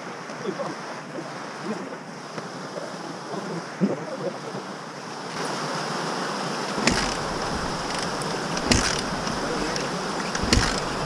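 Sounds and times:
wind noise on microphone: 6.7s - 11.0s
sharp knock: 6.8s - 11.0s.

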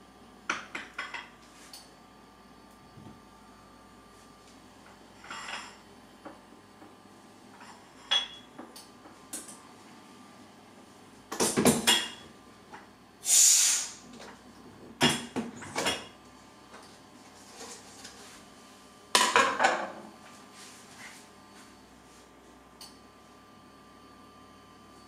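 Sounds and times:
container opening hiss: 13.2s - 14.0s.

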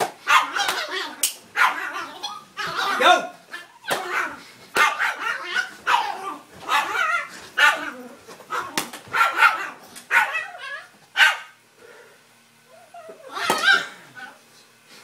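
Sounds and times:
dog barking: 0.3s - 0.9s, 1.6s - 2.1s, 4.0s - 10.6s, 11.2s - 11.6s.

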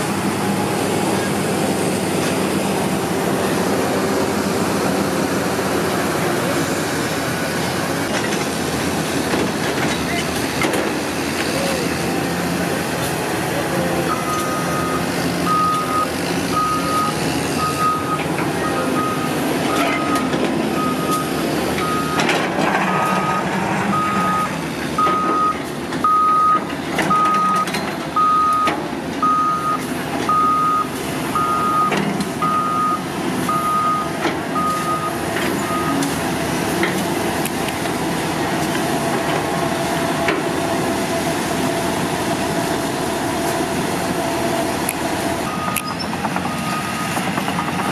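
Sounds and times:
excavator diesel engine: 0.0s - 47.9s
reversing alarm beeping: 14.1s - 22.3s, 22.9s - 36.1s, 45.4s - 47.9s.

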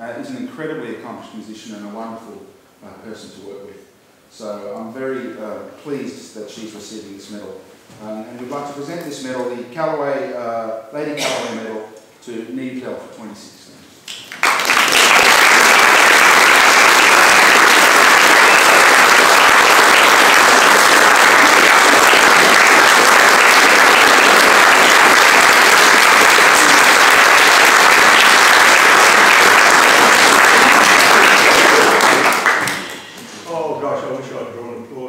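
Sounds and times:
audience applauding: 14.1s - 33.2s.

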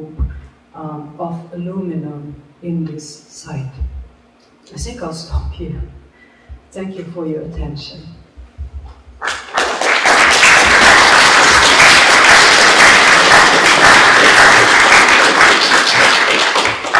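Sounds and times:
audience applauding: 9.2s - 16.9s.

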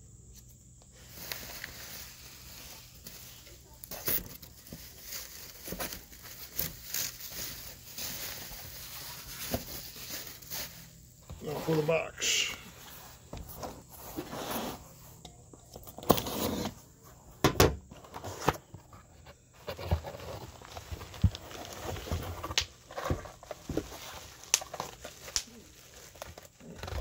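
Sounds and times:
packing material rustling: 1.0s - 11.9s, 20.0s - 27.0s.

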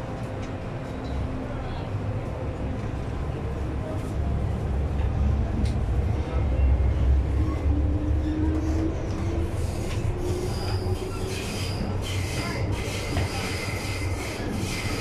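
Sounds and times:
train wheels rumbling: 2.8s - 15.0s
wheel-on-rail squeals: 9.6s - 15.0s.

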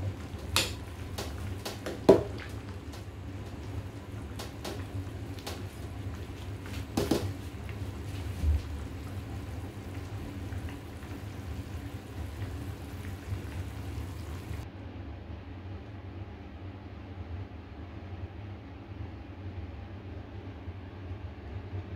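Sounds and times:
soup simmering with low rumble: 0.0s - 14.7s.

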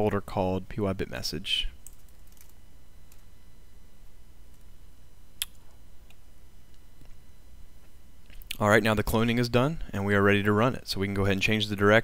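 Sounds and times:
faint steady low hum: 0.0s - 12.0s
sharp click: 5.4s - 6.2s.

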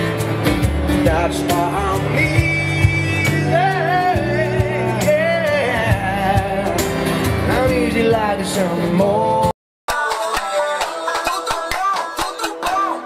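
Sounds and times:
percussion beat: 0.0s - 8.6s, 9.9s - 13.0s
double bass: 0.0s - 9.5s
acoustic guitar: 0.0s - 13.0s
man singing: 0.9s - 13.0s.

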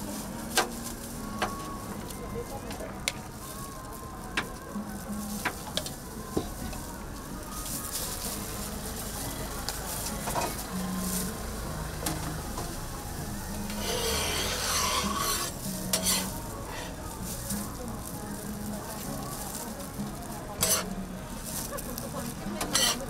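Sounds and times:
spatula scraping a griddle: 13.7s - 17.0s, 20.2s - 21.0s, 22.6s - 23.0s.

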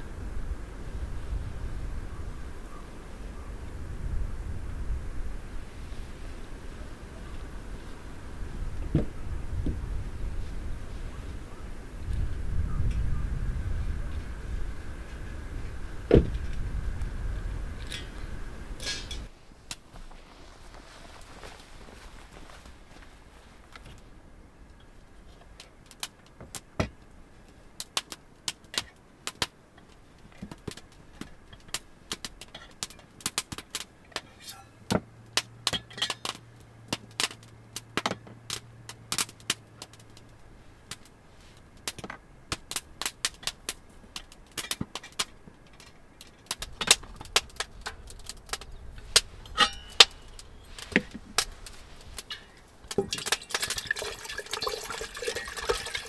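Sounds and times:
water pouring into metal kettle: 53.0s - 56.0s.

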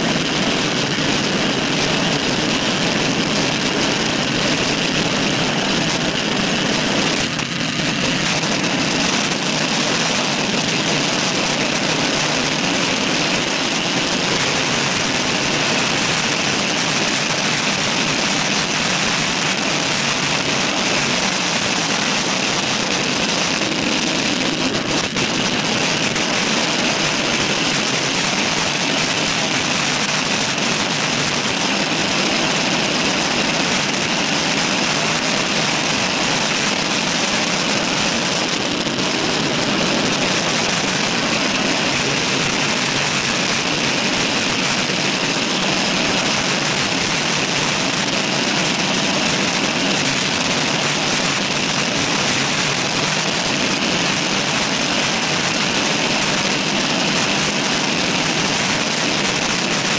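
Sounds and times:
bicycle road noise: 0.0s - 59.9s
wind noise: 0.0s - 59.9s.

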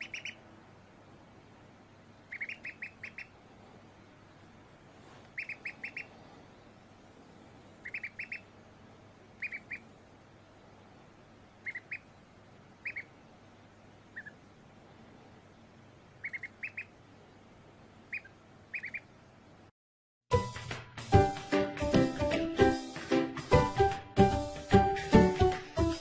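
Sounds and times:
duckling peeping: 0.0s - 0.5s, 2.2s - 3.4s, 5.1s - 6.2s, 7.7s - 8.6s, 9.3s - 10.0s, 11.5s - 13.3s, 14.0s - 14.5s, 16.1s - 17.1s, 18.0s - 19.3s.

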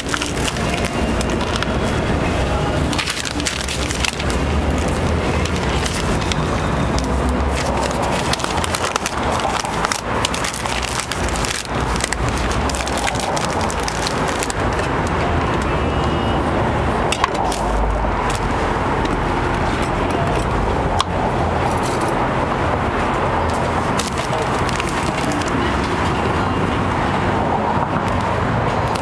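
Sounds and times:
paper sleeve crinkling: 0.0s - 15.8s, 23.6s - 26.0s
low traffic rumble: 0.0s - 29.0s.

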